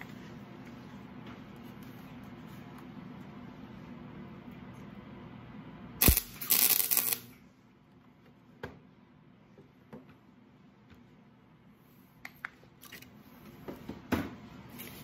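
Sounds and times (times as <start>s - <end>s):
steady low hum: 0.0s - 15.0s
arc welder crackling buzz: 6.0s - 7.4s.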